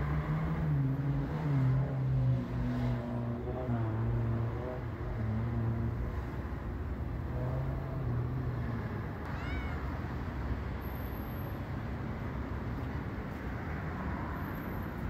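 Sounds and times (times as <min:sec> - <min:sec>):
cat meowing: 0:09.2 - 0:10.0.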